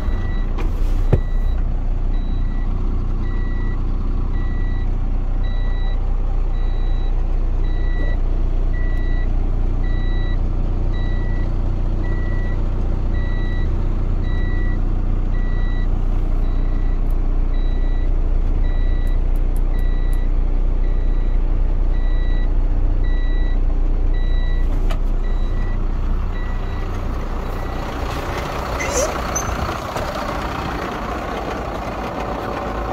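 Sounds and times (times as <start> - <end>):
diesel truck engine idling: 0.0 - 32.9
electronic warning beep: 6.6 - 8.2.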